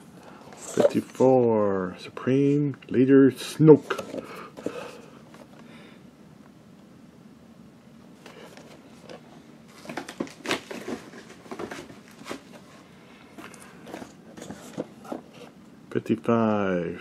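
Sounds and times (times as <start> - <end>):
cardboard boxes being handled: 8.2 - 15.6.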